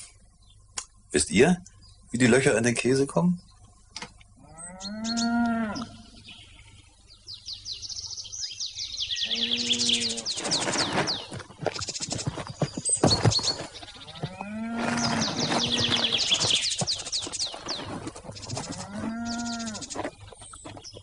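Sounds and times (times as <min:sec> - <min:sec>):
songbirds chirping: 0:00.0 - 0:21.0
cow mooing: 0:04.4 - 0:06.0, 0:09.2 - 0:10.3, 0:14.1 - 0:16.3, 0:18.7 - 0:20.0.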